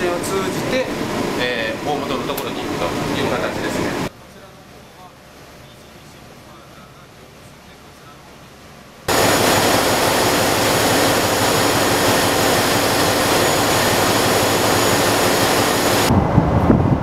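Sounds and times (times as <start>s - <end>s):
diesel engines roaring: 9.1s - 16.7s.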